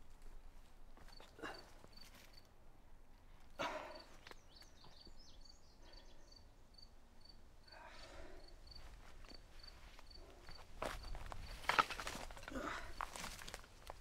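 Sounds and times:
crickets chirping: 4.9s - 11.9s
rustling on stones and leaves: 8.9s - 14.0s.

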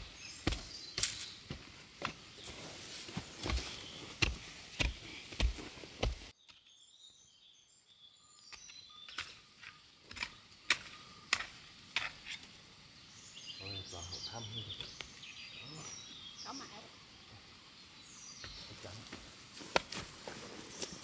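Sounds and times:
footsteps crunching on debris: 0.0s - 6.3s, 18.5s - 21.0s
birds chirping: 0.0s - 21.0s.

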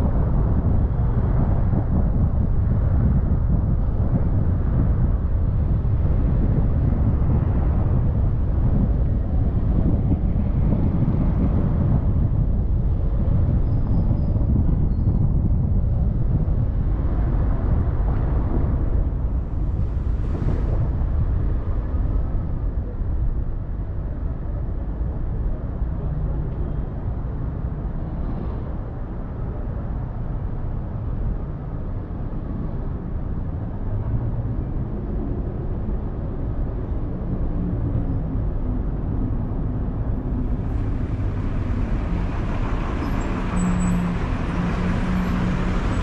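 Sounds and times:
car driving low rumble: 0.0s - 46.0s
road noise: 0.0s - 46.0s
wind on microphone: 0.0s - 46.0s.

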